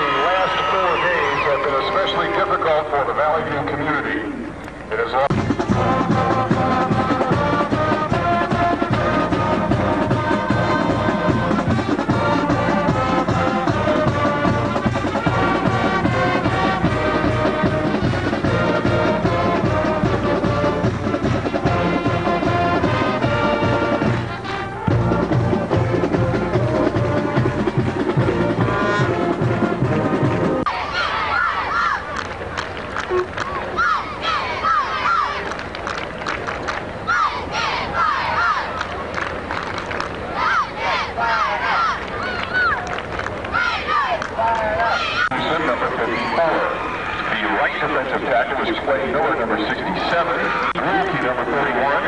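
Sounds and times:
marching band brass: 0:00.0 - 0:04.4, 0:05.0 - 0:35.7, 0:36.6 - 0:52.0
steady drum beat: 0:05.3 - 0:30.7.

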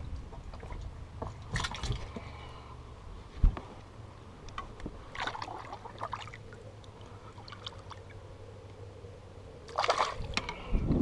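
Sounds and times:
water splashing and trickling: 0:00.0 - 0:02.6, 0:04.5 - 0:08.6, 0:09.6 - 0:11.0
low hum: 0:00.0 - 0:11.0.

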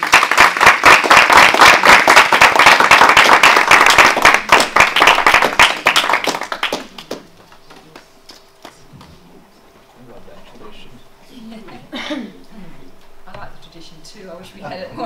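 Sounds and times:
small audience applauding: 0:00.0 - 0:09.1.

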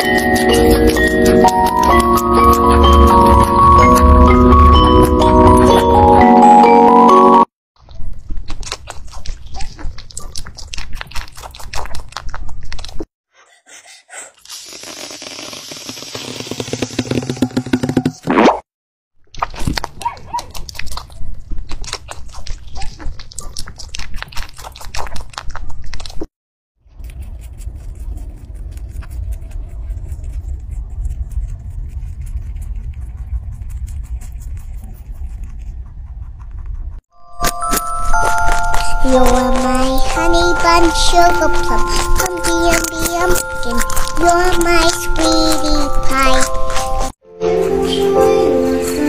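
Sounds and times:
rabbit chewing crunchily: 0:00.0 - 0:06.0, 0:07.8 - 0:13.1, 0:19.4 - 0:47.2
steady low rumble: 0:27.0 - 0:37.0.

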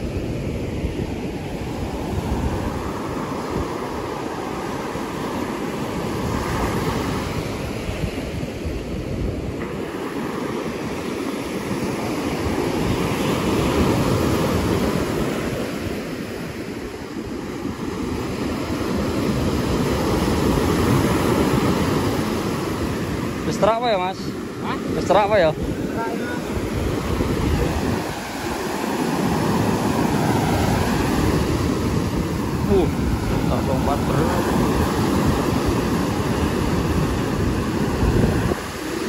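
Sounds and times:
surf breaking on a beach: 0:00.0 - 0:39.0
wind on microphone: 0:00.0 - 0:39.0.

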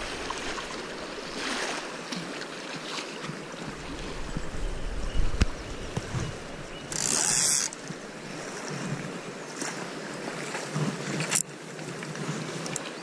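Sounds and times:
wind on microphone: 0:00.0 - 0:01.8, 0:03.5 - 0:09.3
river water rushing: 0:00.0 - 0:13.0.

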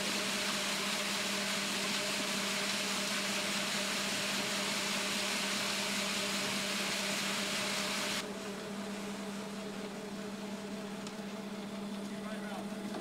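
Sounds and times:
loud hiss: 0:00.0 - 0:08.2
concrete mixer truck humming: 0:00.0 - 0:13.0.

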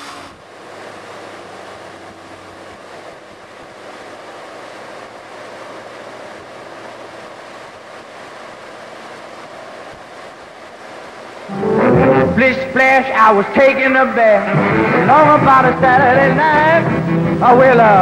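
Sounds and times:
car engine humming: 0:11.5 - 0:18.0.

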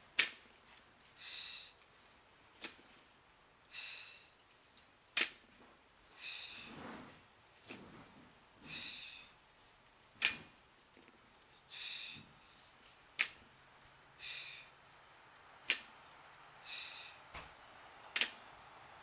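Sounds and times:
lifter breathing: 0:01.2 - 0:01.9, 0:03.7 - 0:04.4, 0:06.1 - 0:07.2, 0:08.6 - 0:09.4, 0:11.6 - 0:12.8, 0:14.2 - 0:14.8, 0:16.6 - 0:17.3.

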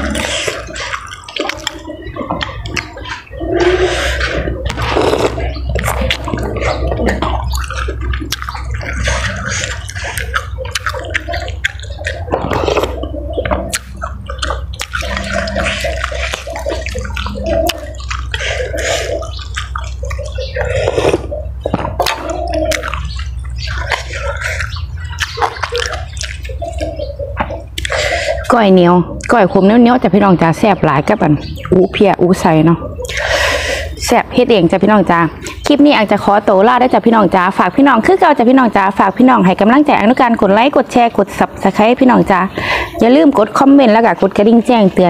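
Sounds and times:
wet mouth clicks: 0:00.0 - 0:29.5, 0:31.4 - 0:31.8, 0:32.8 - 0:34.2, 0:35.3 - 0:35.8
person chewing food: 0:00.0 - 0:29.6, 0:32.8 - 0:34.2, 0:35.4 - 0:35.7
low hum: 0:00.0 - 0:36.1.

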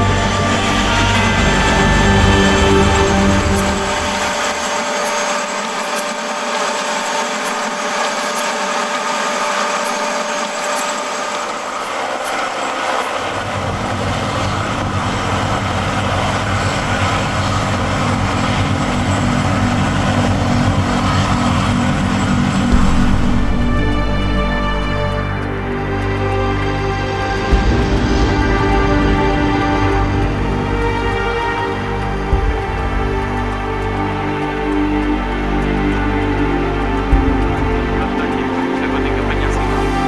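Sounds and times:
deep rumble with fast flutter: 0:00.0 - 0:05.3, 0:13.3 - 0:40.0
helicopter engine with thin whine: 0:00.0 - 0:40.0.

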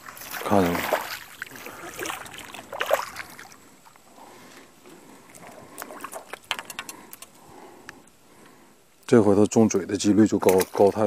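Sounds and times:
fish splashing in water: 0:00.0 - 0:04.0
sharp ticks and taps: 0:06.4 - 0:08.1.

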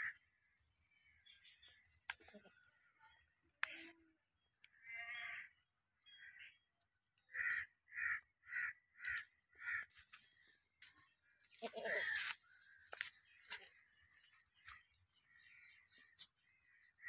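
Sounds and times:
crow cawing: 0:04.8 - 0:05.6, 0:07.3 - 0:10.0, 0:11.6 - 0:13.1
goat bleating: 0:11.5 - 0:12.2.

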